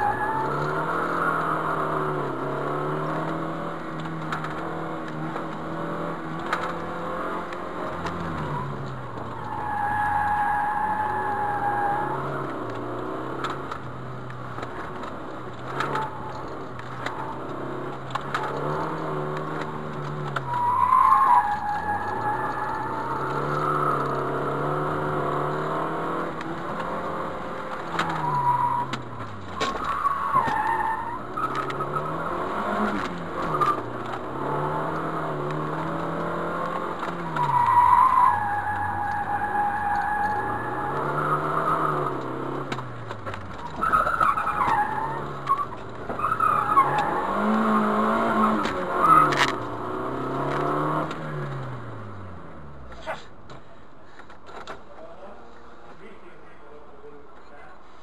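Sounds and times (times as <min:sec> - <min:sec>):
car engine revving: 0:00.0 - 0:53.6
tyres squealing: 0:20.2 - 0:25.1, 0:27.8 - 0:49.7.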